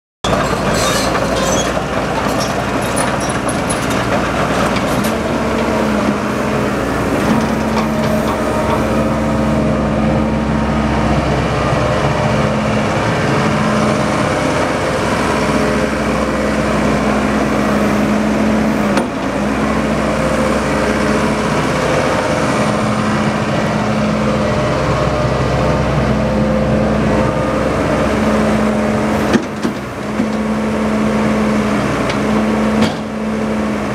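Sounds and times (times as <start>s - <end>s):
excavator diesel engine running: 0.2s - 33.9s.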